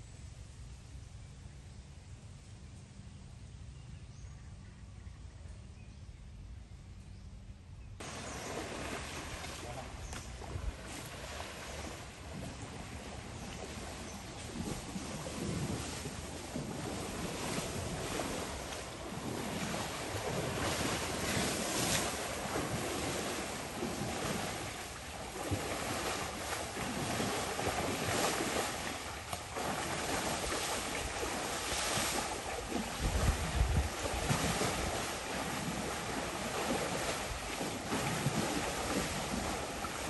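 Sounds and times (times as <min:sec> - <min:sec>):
wind rushing over microphone: 0:08.0 - 0:40.0.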